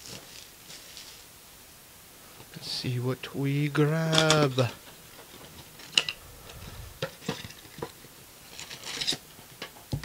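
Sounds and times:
card packs rustling: 0.0s - 1.3s, 3.8s - 9.8s.

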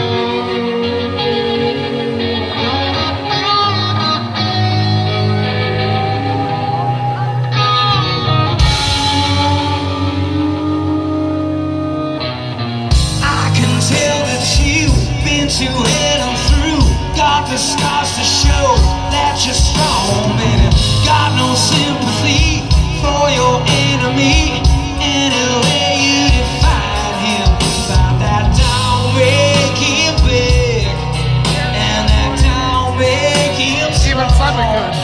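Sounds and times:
male singer: 0.0s - 4.3s, 13.1s - 35.0s
drums: 0.0s - 35.0s
electric guitar chords: 0.0s - 35.0s.

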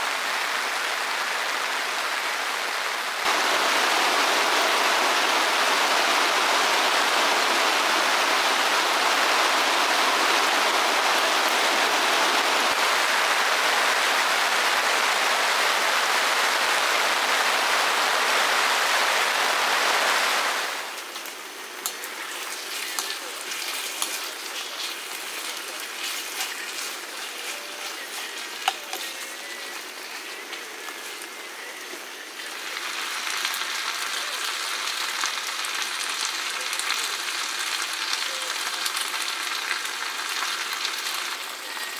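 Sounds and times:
steady rain hiss: 0.0s - 41.9s
patter of raindrops: 16.2s - 41.9s.

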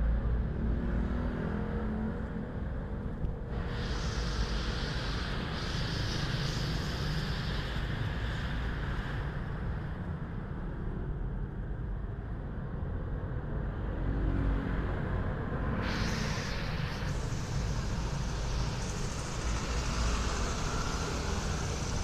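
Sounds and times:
vehicle rumble: 0.0s - 22.0s
high hiss: 3.5s - 9.5s, 15.7s - 22.0s.

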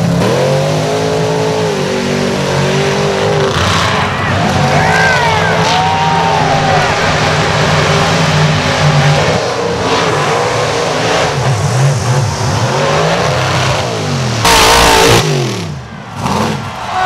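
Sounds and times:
truck engines revving in mud: 0.0s - 17.0s
loud burst of noise: 14.4s - 16.8s.

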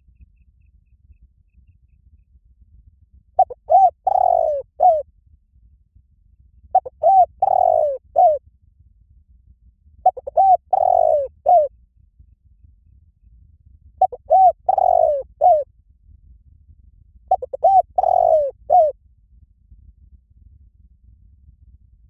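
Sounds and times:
dove cooing: 3.4s - 5.0s, 6.8s - 8.4s, 10.0s - 11.7s, 14.0s - 15.6s, 17.3s - 18.9s.

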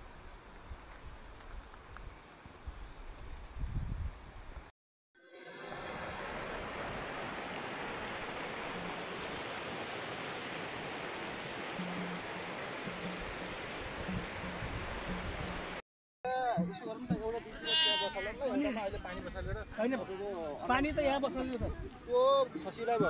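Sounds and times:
river rushing over rocks: 5.4s - 15.8s.

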